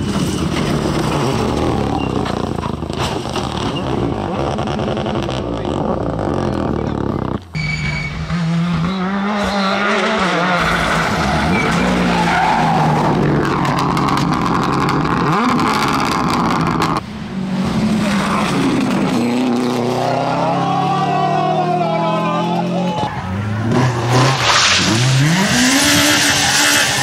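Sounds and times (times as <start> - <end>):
rally car engines revving: 0.0 - 27.0
tyres skidding on loose surface: 9.3 - 17.0.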